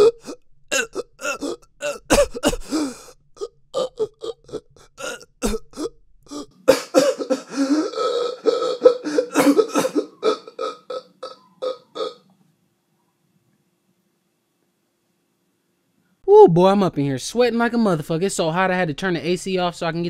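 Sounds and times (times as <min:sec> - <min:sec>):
man grunting and gasping: 0:00.0 - 0:11.0.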